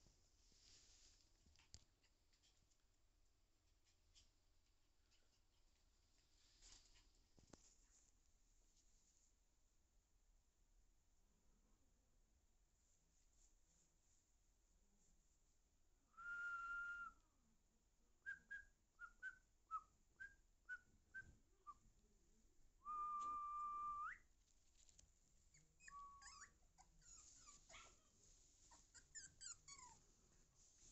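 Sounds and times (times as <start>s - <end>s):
puppies whining and whimpering: 25.6s - 27.8s.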